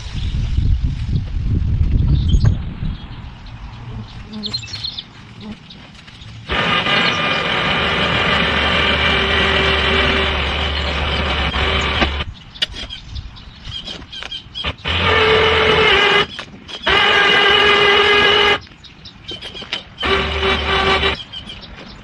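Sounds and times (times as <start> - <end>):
lawn tractor engine running: 6.5 - 12.3, 14.6 - 18.6, 20.0 - 21.2.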